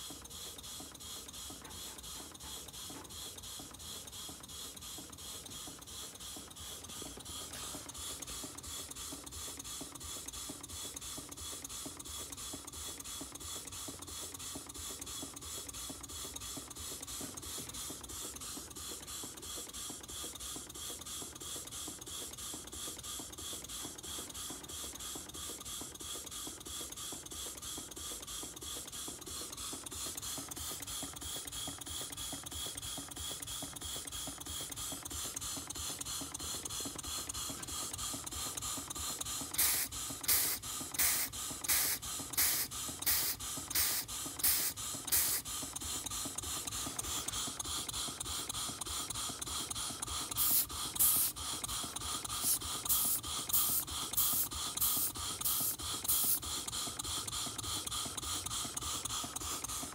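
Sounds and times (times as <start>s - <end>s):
model steam engine clattering: 0.0s - 59.9s
hissing air puffs: 39.4s - 45.5s, 50.3s - 51.4s.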